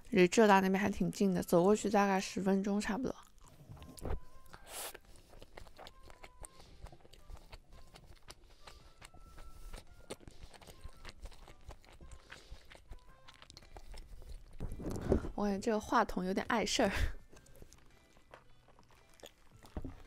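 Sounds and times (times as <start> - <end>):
wet chewing mouth clicks: 3.2 - 15.1, 17.3 - 20.0.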